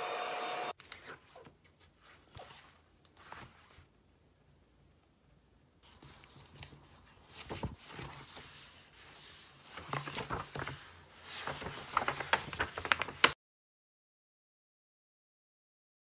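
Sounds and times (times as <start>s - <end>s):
book pages turning and rustling: 0.8s - 4.0s, 5.8s - 13.4s.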